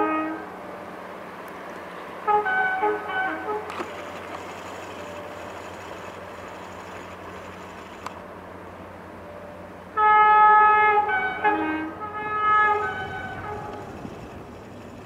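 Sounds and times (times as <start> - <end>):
locomotive air horn chord: 0.0 - 0.7, 2.2 - 4.4, 9.9 - 14.8
steady low hum: 0.7 - 10.0.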